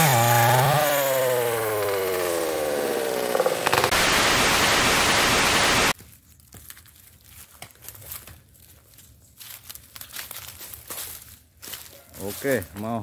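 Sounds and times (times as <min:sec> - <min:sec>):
loud even hiss: 0:03.6 - 0:06.0.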